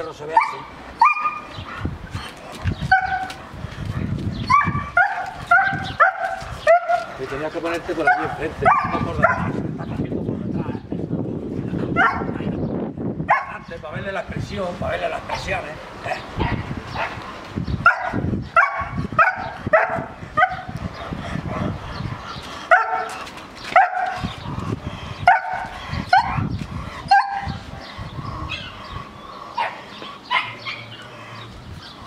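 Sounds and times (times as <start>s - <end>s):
dog barking: 0.3s - 1.5s, 2.9s - 3.4s, 4.5s - 7.1s, 8.0s - 9.6s, 12.0s - 12.4s, 13.3s - 13.6s, 17.8s - 20.7s, 22.7s - 23.2s, 23.8s - 24.2s, 25.2s - 26.5s, 27.1s - 27.6s, 29.6s - 30.9s.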